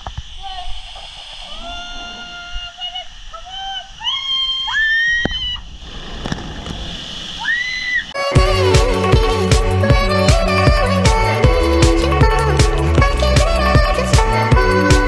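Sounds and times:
girls screaming and squealing: 3.6 - 5.7, 7.4 - 8.2
music: 8.2 - 15.0.

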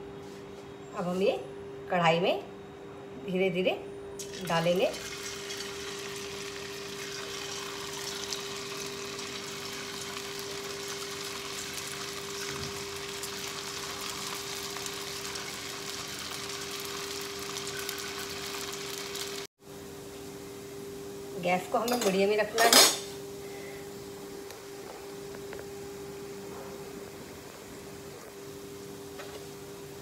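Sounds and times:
oil sizzling and crackling: 4.2 - 19.5
steady low hum: 19.6 - 30.0.

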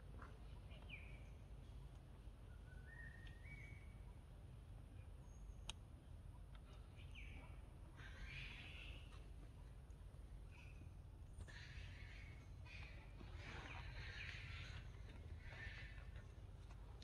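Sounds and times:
low steady rumble: 0.0 - 17.0
faint high chirping calls: 2.4 - 4.2, 6.9 - 9.2.

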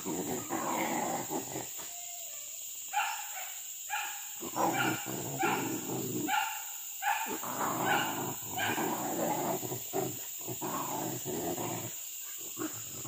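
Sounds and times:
dogs barking: 2.9 - 9.0.

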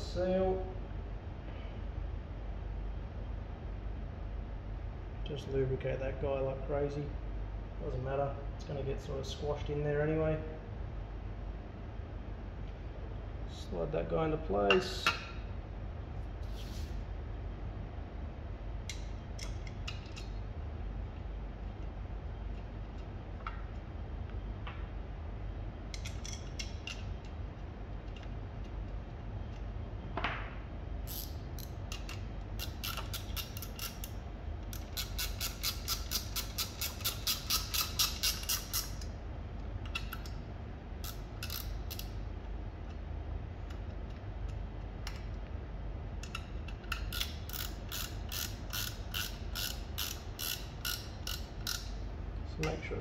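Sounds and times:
ratchet wrench clicking: 31.1 - 39.1, 41.0 - 42.2, 46.2 - 52.0.

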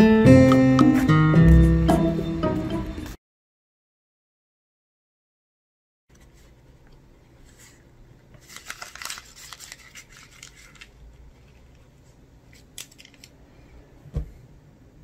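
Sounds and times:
faint paper rustles: 6.1 - 6.7, 7.3 - 13.4
paper ticket crinkling: 8.4 - 11.9, 12.5 - 13.4.

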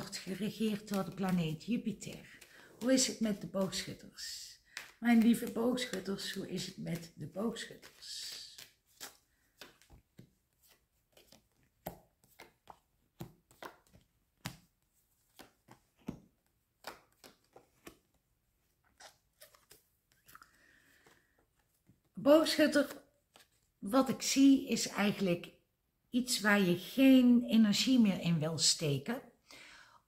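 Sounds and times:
cards clicking and tapping: 0.1 - 18.2.

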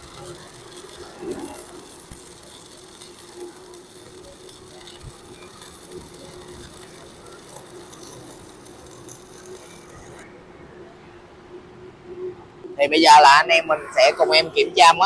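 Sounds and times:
welder hum: 0.0 - 10.2
welding arc crackling: 0.0 - 10.2.

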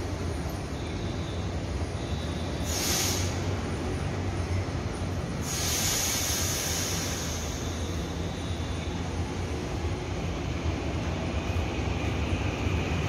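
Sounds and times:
train equipment humming: 0.0 - 13.0
compressed air hissing: 2.6 - 3.6, 5.4 - 8.1.

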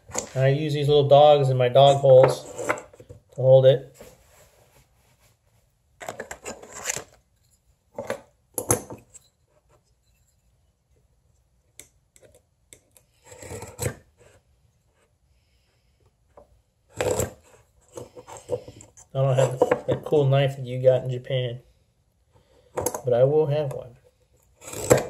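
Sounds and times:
marking knife scraping wood: 13.1 - 15.2, 16.9 - 19.7, 24.4 - 25.0.

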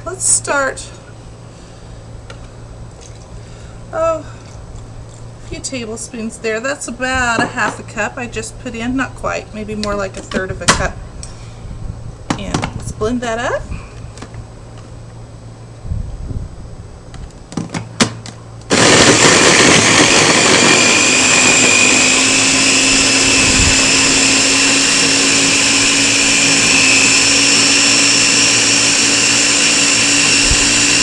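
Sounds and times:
blender motor whining: 18.6 - 31.0.

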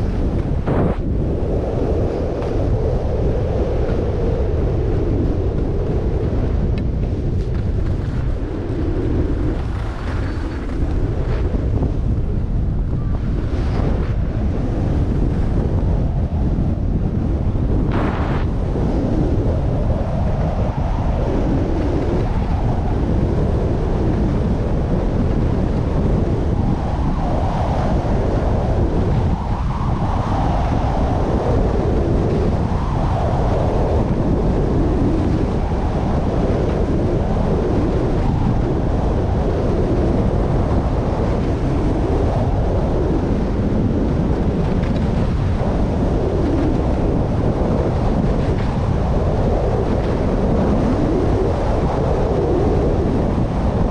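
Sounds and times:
wind buffeting microphone: 0.0 - 53.9
skis scraping on snow: 7.0 - 8.4, 9.3 - 11.6.

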